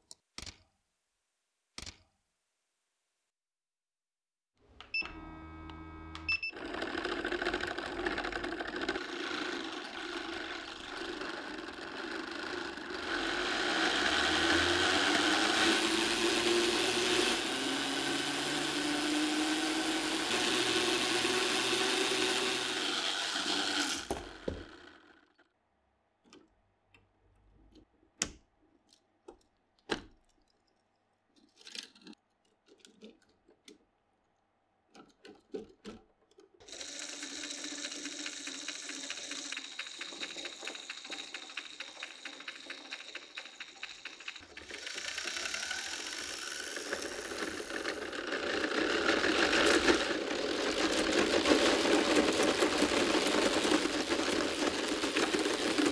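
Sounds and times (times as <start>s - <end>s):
toy motors whirring and rattling: 6.4s - 25.4s, 36.6s - 55.9s
plastic parts clicking and knocking: 6.6s - 13.3s, 26.2s - 55.9s.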